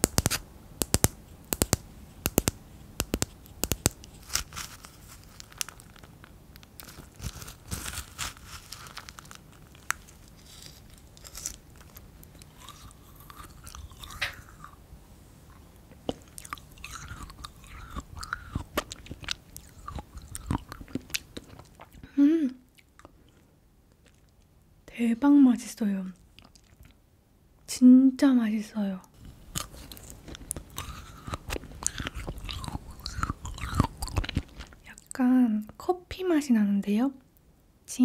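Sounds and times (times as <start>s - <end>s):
sharp clicks: 0.0s - 4.1s
frozen beads crunching in mouth: 0.0s - 14.8s, 15.5s - 22.1s, 29.2s - 35.2s.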